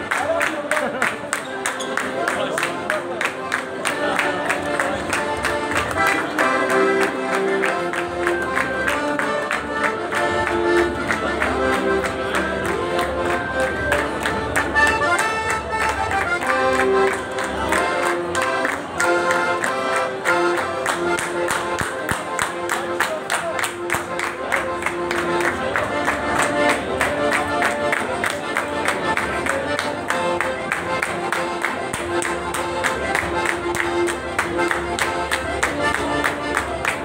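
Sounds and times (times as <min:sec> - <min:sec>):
accordion dance music: 0:00.0 - 0:37.0
hand claps: 0:00.0 - 0:37.0.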